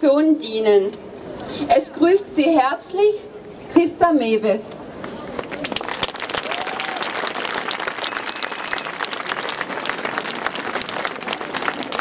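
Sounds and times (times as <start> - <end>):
large crowd applauding: 5.4 - 12.0.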